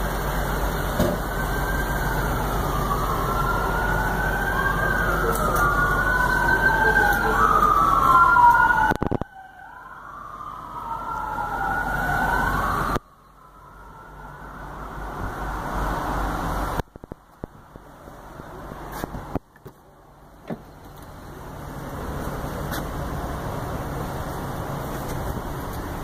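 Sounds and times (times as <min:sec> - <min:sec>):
wailing siren: 0:00.2 - 0:16.8.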